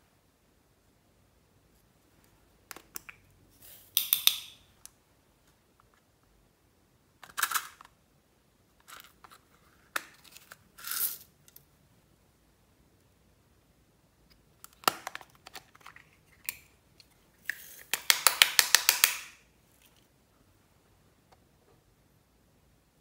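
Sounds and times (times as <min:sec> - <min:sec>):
plastic cases clicking and snapping: 0:14.6 - 0:16.7.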